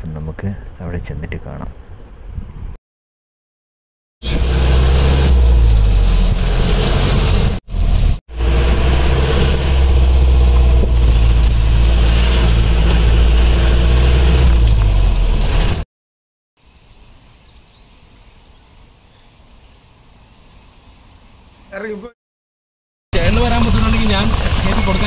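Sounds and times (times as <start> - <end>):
faint outdoor background: 0.0 - 2.8, 16.6 - 22.2
wind and road noise: 0.0 - 2.8, 4.2 - 15.8
car engine running: 4.2 - 15.8.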